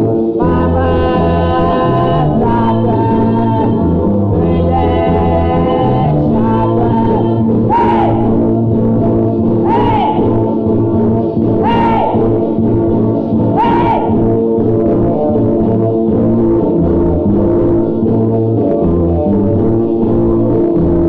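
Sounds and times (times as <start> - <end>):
person singing: 0.0 - 8.4, 9.6 - 10.5, 11.6 - 12.6, 13.5 - 14.3
steady bass line: 0.0 - 21.0
sustained chords: 0.0 - 21.0.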